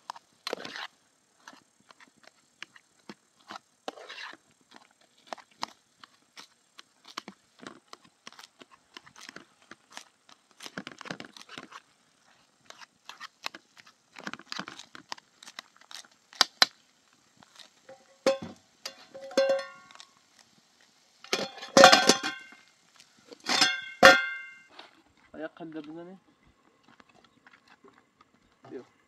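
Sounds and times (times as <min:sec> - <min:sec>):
rustling and crinkling: 0:00.0 - 0:29.0
ringing clink: 0:18.3 - 0:19.9, 0:23.5 - 0:24.7.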